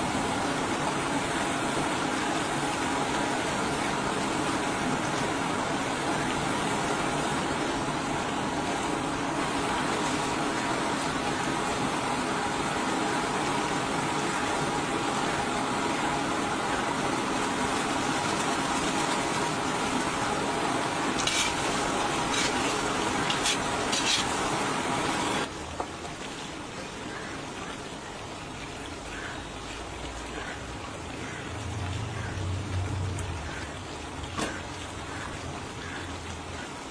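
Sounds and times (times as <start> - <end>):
gravy boiling and sizzling: 0.0 - 36.9.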